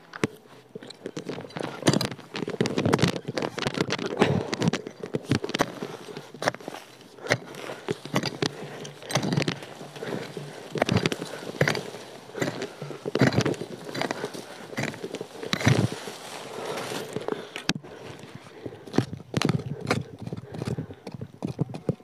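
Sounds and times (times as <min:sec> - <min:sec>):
roots crunching and breaking: 0:00.0 - 0:20.8
digging tool striking soil: 0:00.2 - 0:18.2.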